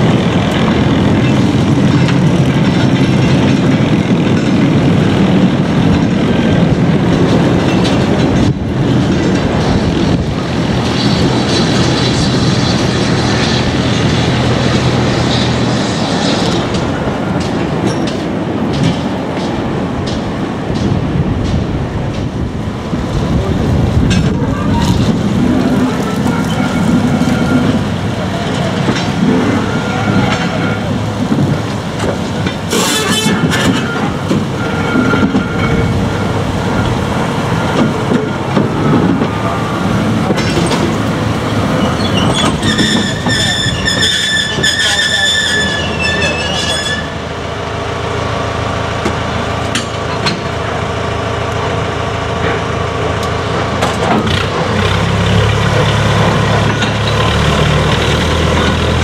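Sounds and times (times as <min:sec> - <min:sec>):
rumble of train wheels: 0:00.0 - 0:59.0
high-pitched wheel squeal: 0:41.8 - 0:47.2.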